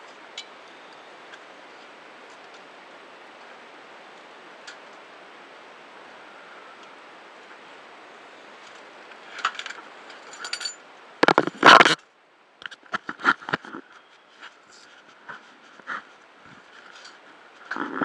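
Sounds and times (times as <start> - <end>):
steady hiss: 0.0 - 18.0
metal and plastic clinks: 9.4 - 10.8.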